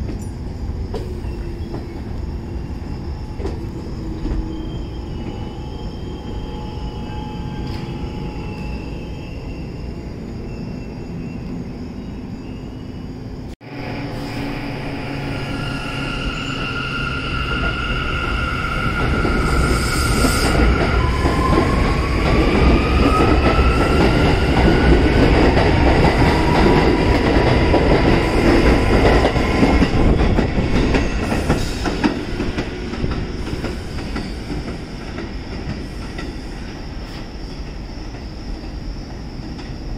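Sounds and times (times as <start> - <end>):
train wheels rumbling on rails: 0.0 - 9.2, 13.6 - 39.9.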